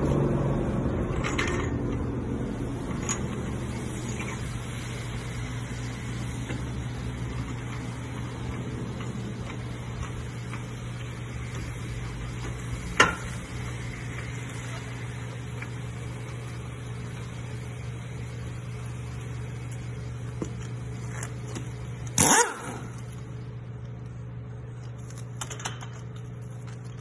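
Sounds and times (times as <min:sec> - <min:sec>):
steady low hum: 0:00.0 - 0:27.0
pneumatic impact wrench burst: 0:22.1 - 0:23.1.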